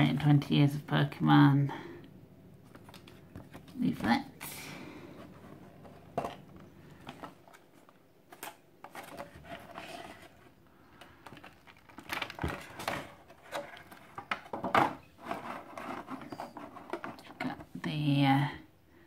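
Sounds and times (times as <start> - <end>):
plastic packaging crackling: 6.4 - 14.6.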